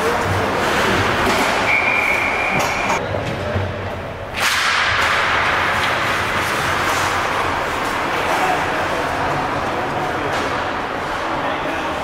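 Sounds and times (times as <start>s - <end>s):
referee's whistle blast: 1.7s - 2.8s
sharp crack: 4.4s - 7.6s
skates and sticks on ice: 4.4s - 12.0s.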